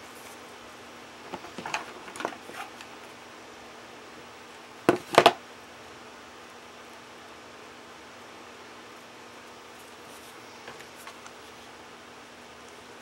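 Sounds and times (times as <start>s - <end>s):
cardboard tube rustling: 1.2s - 2.9s.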